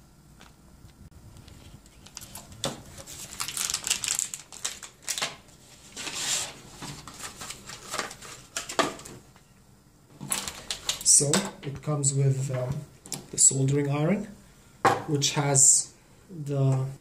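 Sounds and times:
plastic bag crinkling: 0:01.5 - 0:06.1.

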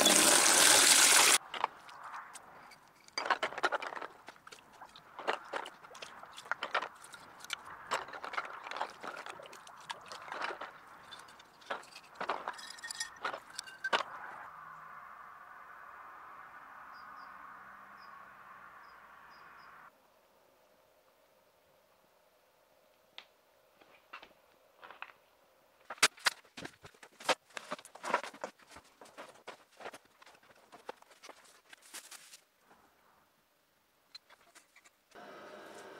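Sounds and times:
water splashing and sloshing: 0:03.3 - 0:14.0
glass bottles clinking: 0:11.0 - 0:14.1
footsteps: 0:25.8 - 0:32.4.

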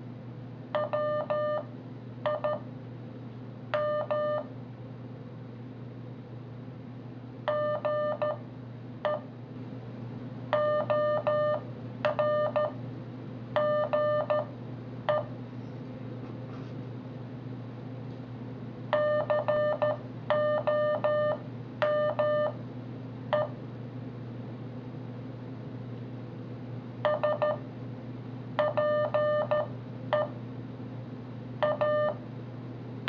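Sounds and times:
morse code beeps: 0:00.8 - 0:01.7, 0:03.8 - 0:04.5, 0:07.5 - 0:08.4, 0:10.6 - 0:12.8, 0:13.6 - 0:14.5, 0:19.0 - 0:22.6, 0:27.1 - 0:27.6, 0:28.6 - 0:30.3, 0:31.6 - 0:32.2.

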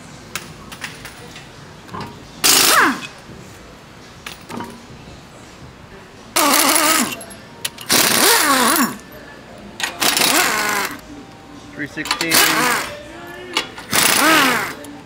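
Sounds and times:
impact wrench running: 0:02.4 - 0:03.2, 0:06.4 - 0:09.0, 0:09.8 - 0:11.0, 0:12.0 - 0:13.0, 0:13.6 - 0:14.9.

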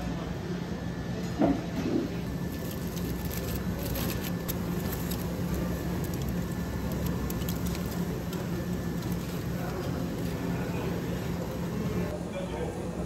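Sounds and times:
steady low hum: 0:00.0 - 0:13.0
foil wrapper crinkling: 0:02.2 - 0:11.6.

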